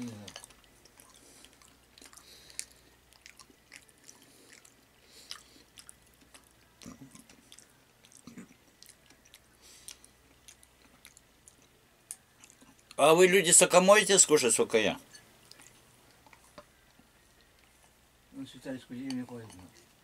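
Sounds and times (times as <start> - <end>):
person chewing: 0.0 - 13.0, 15.1 - 18.1.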